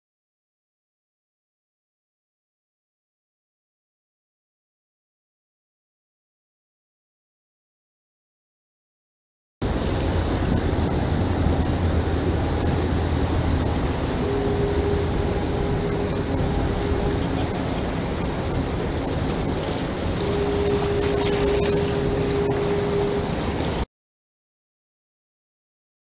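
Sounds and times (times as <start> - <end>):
foghorn blasts: 9.6 - 23.8
wind buffeting microphone: 9.6 - 23.8
churning propeller wash: 9.6 - 23.9.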